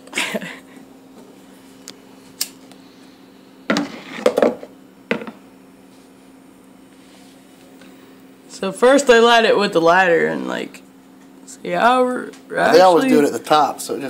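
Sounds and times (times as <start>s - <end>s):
steady low hum: 0.0s - 14.0s
objects knocking on plastic board: 3.7s - 5.4s.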